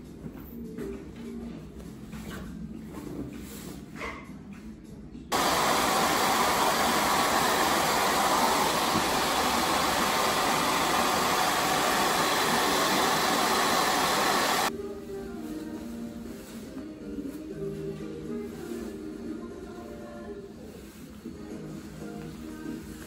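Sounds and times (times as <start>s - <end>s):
hair dryer blowing: 5.3s - 14.7s.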